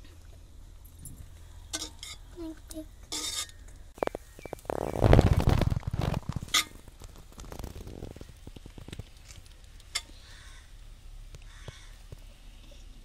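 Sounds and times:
metal spatula scraping rice: 0:03.1 - 0:03.6.

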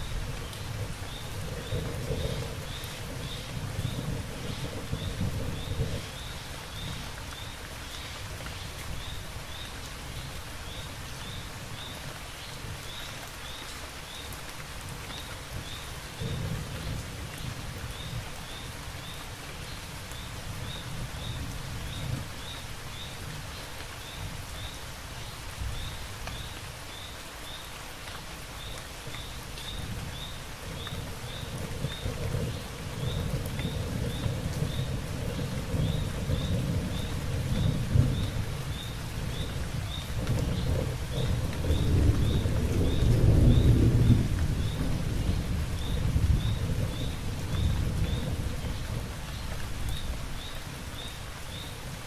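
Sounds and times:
low thunder rumbles: 0:00.0 - 0:07.2, 0:14.9 - 0:23.4, 0:29.4 - 0:50.8
heavy rain falling: 0:00.0 - 0:52.0.

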